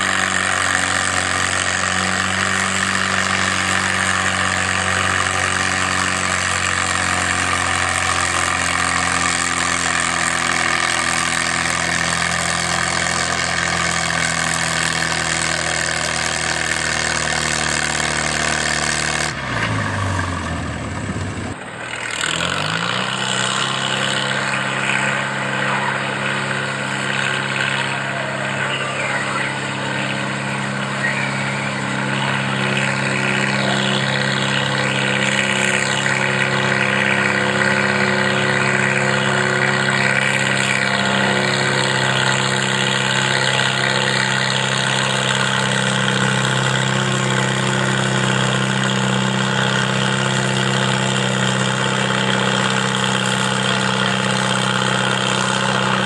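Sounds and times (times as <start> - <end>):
tractor engine revving under load: 0.0 - 56.0.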